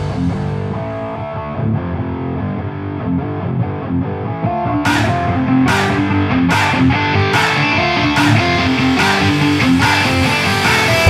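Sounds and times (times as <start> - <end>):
rock music with guitar: 0.0 - 11.0
sharp beat hits: 4.9 - 11.0.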